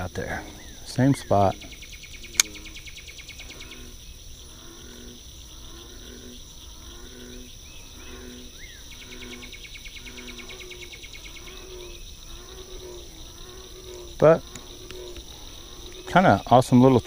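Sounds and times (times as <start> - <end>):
bird chirps: 0.0 - 4.2, 6.7 - 17.0
insects chirring: 0.0 - 17.0
sharp click: 2.3 - 2.6.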